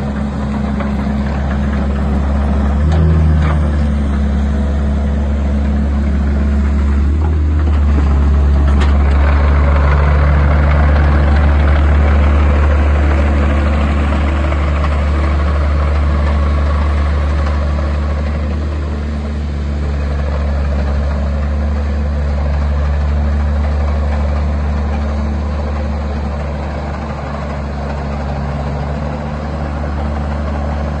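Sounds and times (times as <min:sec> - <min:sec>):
excavator diesel engine running: 0:00.0 - 0:31.0.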